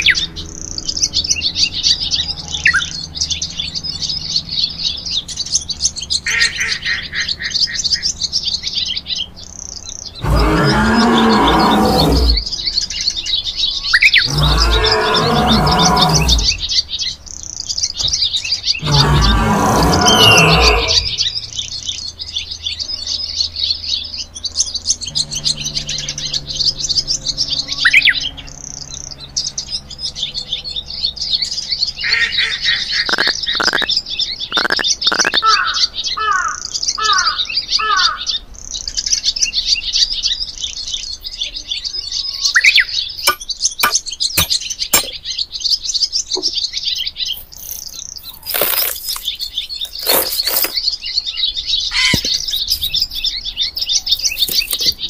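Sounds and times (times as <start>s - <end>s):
small birds chirping: 0.0s - 55.0s
short falling bird calls: 14.0s - 16.8s, 18.8s - 21.3s, 32.1s - 33.9s, 34.5s - 38.2s.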